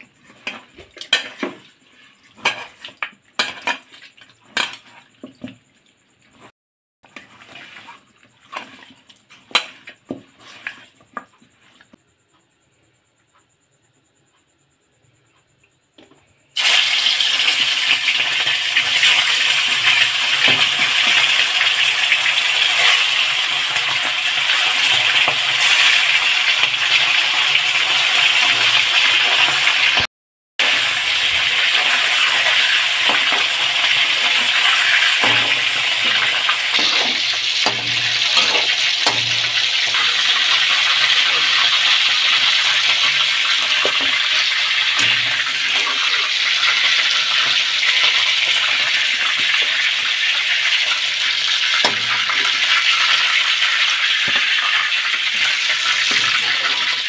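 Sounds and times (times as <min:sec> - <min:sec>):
ladle scraping steel pan: 0:00.0 - 0:05.2, 0:07.1 - 0:12.0, 0:31.6 - 0:50.1, 0:51.0 - 0:57.0
chicken sizzling in hot oil: 0:00.0 - 0:06.5, 0:07.1 - 0:12.0, 0:16.6 - 0:57.0.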